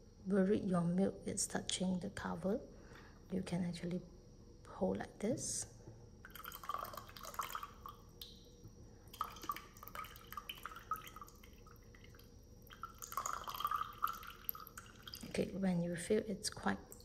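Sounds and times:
liquid trickling into a cup: 6.2s - 15.5s.

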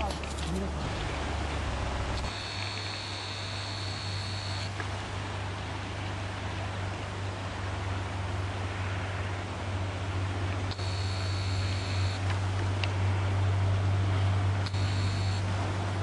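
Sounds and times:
wind hiss on microphone: 0.0s - 16.0s
thin high whine: 0.9s - 4.8s, 10.7s - 12.3s, 14.6s - 15.6s.

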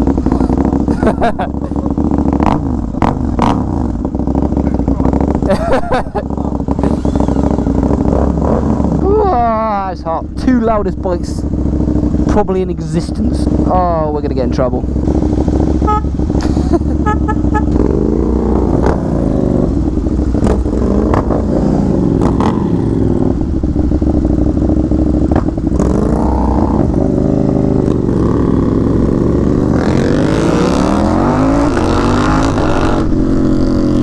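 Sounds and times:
motorcycle accelerating: 0.0s - 34.0s.

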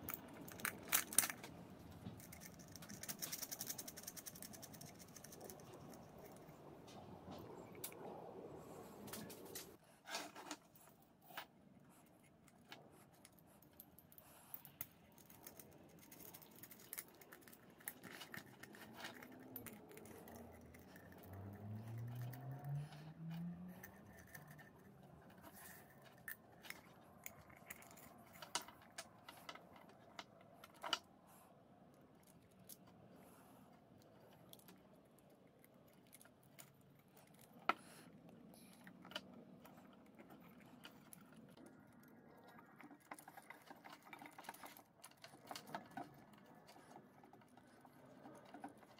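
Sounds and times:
metallic clicks and rattles: 0.0s - 8.0s, 12.5s - 31.1s, 38.7s - 48.9s.

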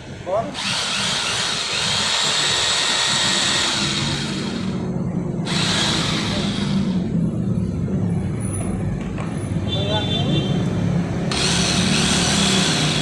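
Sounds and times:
low road traffic rumble: 0.0s - 13.0s
hammer drill motor whine: 0.5s - 7.0s, 11.3s - 13.0s.

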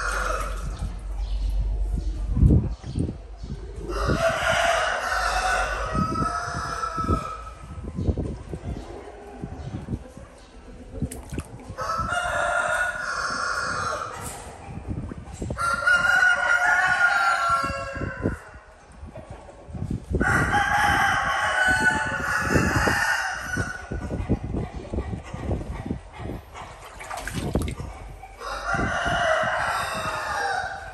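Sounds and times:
rooster crowing: 28.4s - 30.9s.

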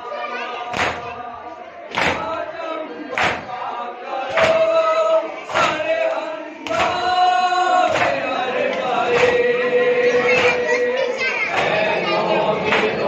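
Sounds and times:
hands slapping chests: 0.7s - 1.1s, 1.9s - 2.4s, 3.1s - 3.5s, 4.3s - 4.7s, 5.5s - 7.1s, 7.9s - 9.5s, 10.3s - 10.7s, 11.5s - 11.8s, 12.7s - 13.0s
men chanting in unison: 0.7s - 13.0s.

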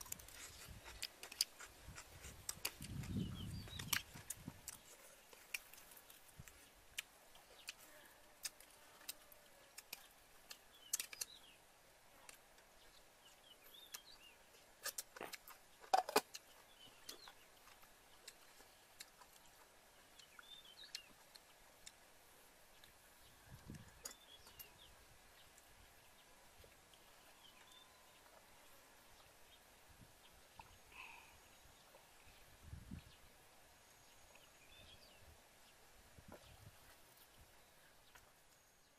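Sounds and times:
chewing: 0.0s - 11.5s, 13.3s - 22.0s.

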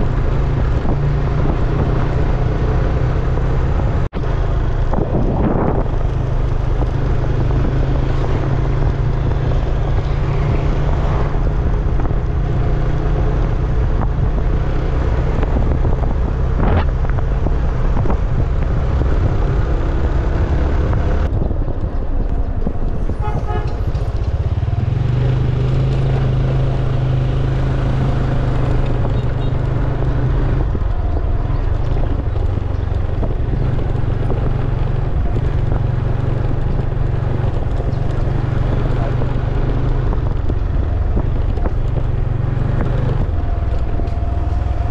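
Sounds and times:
road noise: 0.0s - 44.9s
horn toot: 23.1s - 24.0s.

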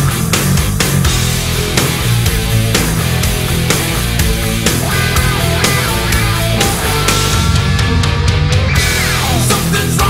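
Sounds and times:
heavy rock music: 0.0s - 10.0s.

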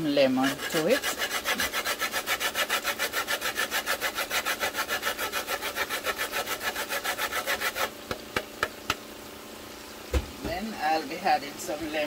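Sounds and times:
grater rasping on lemon rind: 0.0s - 8.2s.

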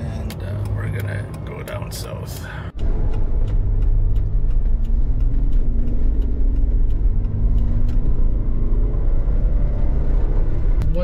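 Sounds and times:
engine and tyre rumble: 0.0s - 11.0s
sharp ticks: 0.2s - 9.8s.

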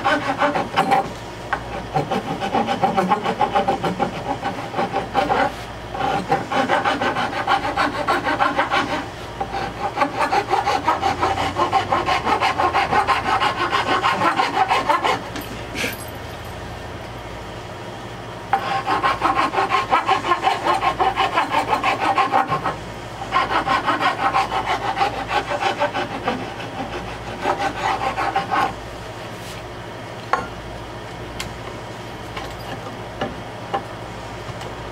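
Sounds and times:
hand file rasping on wood: 0.0s - 1.0s, 1.7s - 15.2s, 18.6s - 28.8s.

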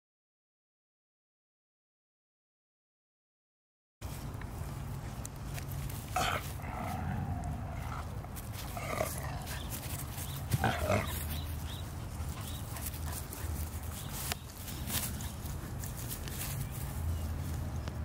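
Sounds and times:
dogs scuffling: 4.0s - 18.0s
dogs whining: 6.2s - 12.8s.

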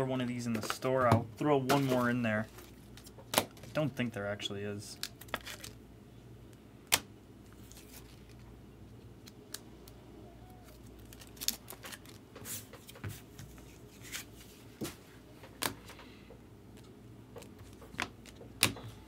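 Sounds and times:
low room hum: 0.0s - 19.0s
card sleeves rustling: 7.5s - 8.4s, 10.6s - 15.0s.

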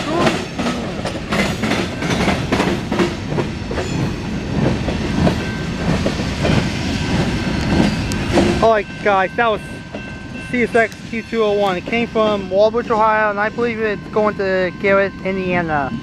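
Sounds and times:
freight train rolling past: 0.0s - 16.0s
wheels clacking on rails: 0.0s - 16.0s.

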